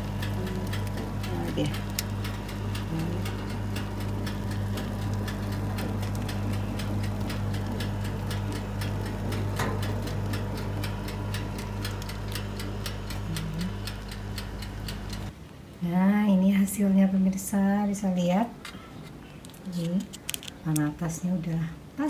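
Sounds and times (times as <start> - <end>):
mechanical timer ticking: 0.0 - 15.4
electric oven humming: 0.0 - 22.0.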